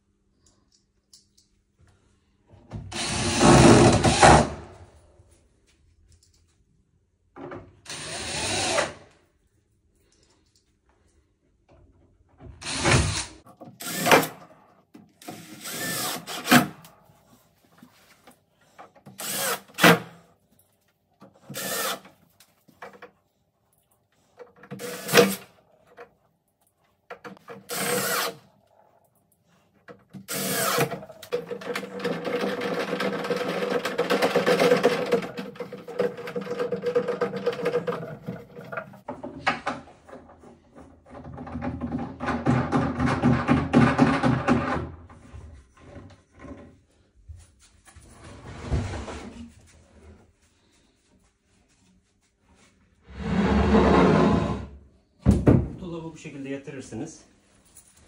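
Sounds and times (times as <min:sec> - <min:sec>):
cordless drill driving screws: 0:02.9 - 0:04.4, 0:07.9 - 0:09.0, 0:12.6 - 0:14.4, 0:15.2 - 0:16.7, 0:19.2 - 0:20.0, 0:21.5 - 0:22.1, 0:24.7 - 0:25.5, 0:27.6 - 0:28.4, 0:30.3 - 0:31.0.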